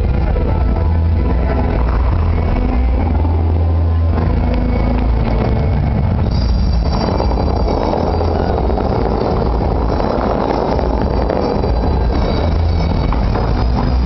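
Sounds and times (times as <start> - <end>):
heavy low rumble: 0.0 - 14.0
fountain jets rushing and splashing: 3.4 - 14.0.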